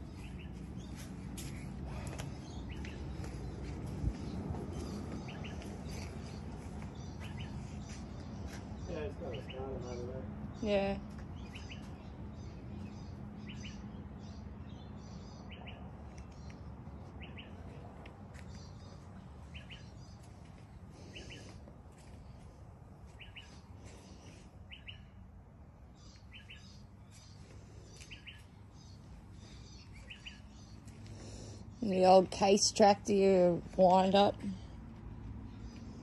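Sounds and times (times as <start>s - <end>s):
higher chirps of other birds: 0.0s - 10.1s, 11.4s - 17.7s, 23.1s - 25.2s, 26.0s - 31.8s
small bird chirping: 26.0s - 31.8s.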